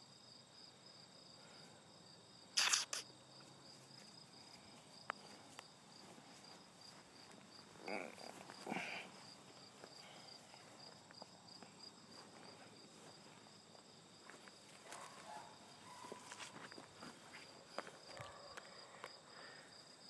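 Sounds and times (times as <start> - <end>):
insect chirping: 0.0 - 20.0
footsteps in grass: 2.6 - 18.1.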